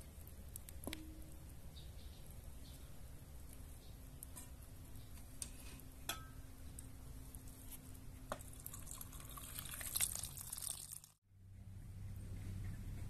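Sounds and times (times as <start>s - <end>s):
water dripping and splashing: 8.3s - 11.2s.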